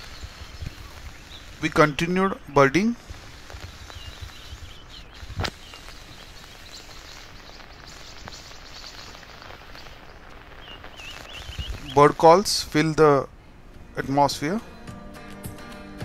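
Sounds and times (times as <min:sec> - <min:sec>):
faint bird chirps: 0:00.0 - 0:12.3.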